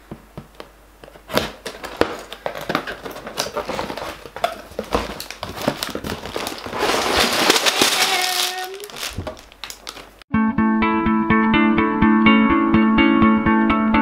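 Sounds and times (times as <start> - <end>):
cardboard flaps tearing: 1.0 - 10.2.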